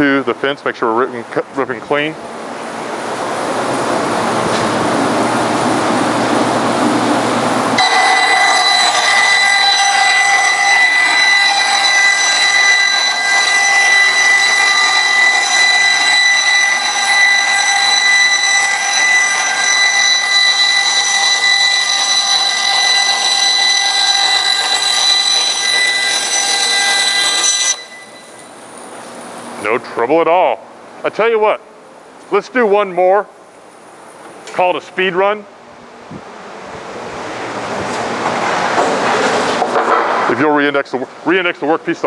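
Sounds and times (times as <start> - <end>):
bandsaw whining and rasping: 7.8 - 28.5.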